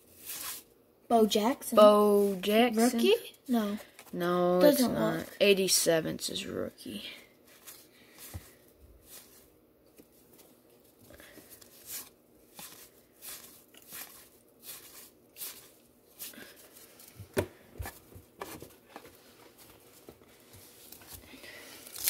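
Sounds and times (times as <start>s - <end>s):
cards being flipped through: 9.1s - 16.8s.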